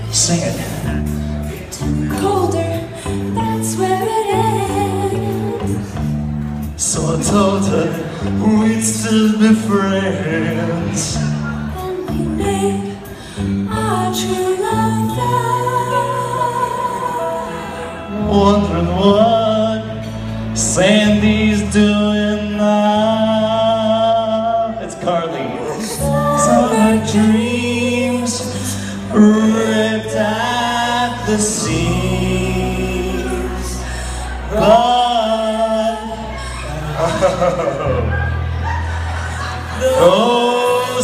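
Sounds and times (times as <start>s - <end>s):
backing track with bass line: 0.0s - 41.0s
woman singing: 2.1s - 5.9s, 11.7s - 18.1s, 25.8s - 28.5s
man singing: 6.8s - 13.0s, 17.6s - 38.0s, 39.8s - 41.0s.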